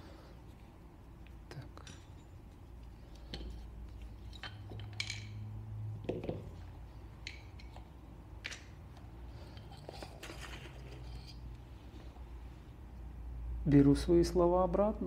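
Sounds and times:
metallic clicks and scrapes: 1.5s - 5.4s, 7.1s - 11.7s.

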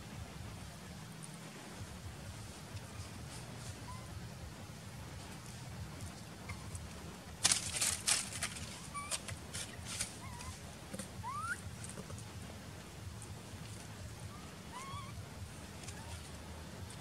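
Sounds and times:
sharp crackles and rustles: 4.9s - 17.0s.

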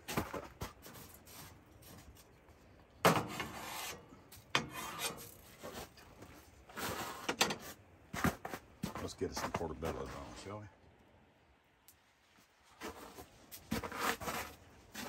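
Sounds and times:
utensil scraping snow in skillet: 3.1s - 4.0s, 4.6s - 6.0s, 6.7s - 7.8s, 12.6s - 15.0s.

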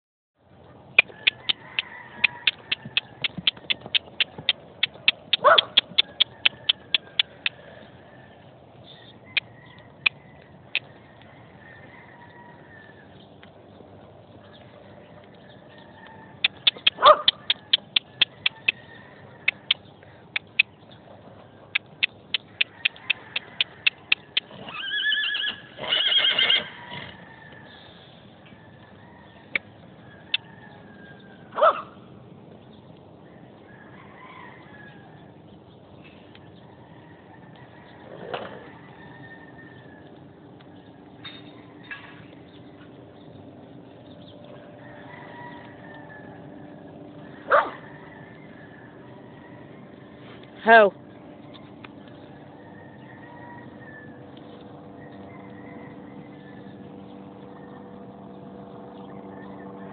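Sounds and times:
rapid sharp clicks: 2.2s - 7.5s, 16.5s - 18.8s, 21.8s - 24.5s
horse whinnying: 24.5s - 27.2s.

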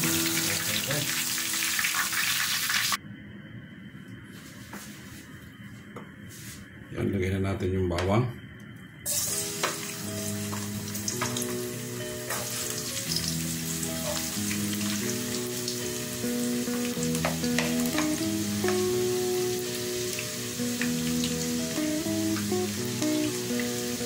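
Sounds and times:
soft background music: 0.0s - 2.4s, 3.6s - 24.0s
garlic sizzling in hot oil: 0.0s - 3.0s, 9.1s - 24.0s.

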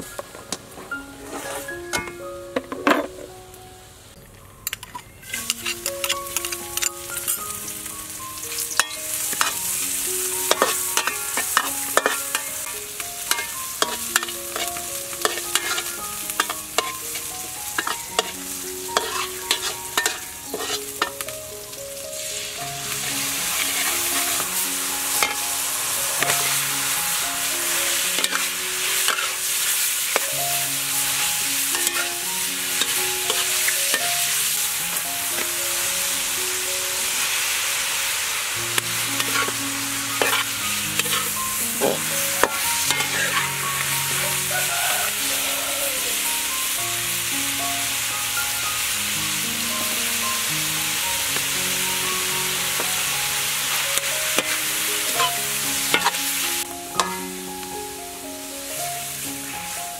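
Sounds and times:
metal spatula scraping a wok: 1.2s - 2.1s, 4.9s - 7.5s, 8.5s - 21.2s, 23.0s - 30.3s, 31.1s - 35.5s, 38.8s - 45.3s, 53.7s - 57.2s
food sizzling in hot oil: 4.9s - 59.9s.

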